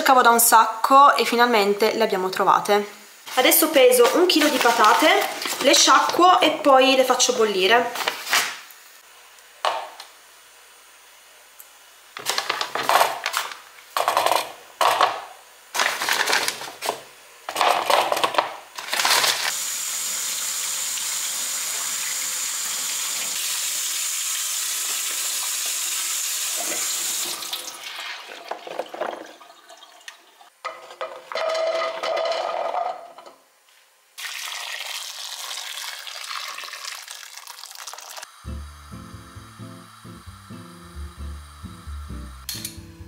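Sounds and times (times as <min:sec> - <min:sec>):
kitchen tap running: 0:03.4 - 0:06.6, 0:19.5 - 0:30.6, 0:34.2 - 0:42.6.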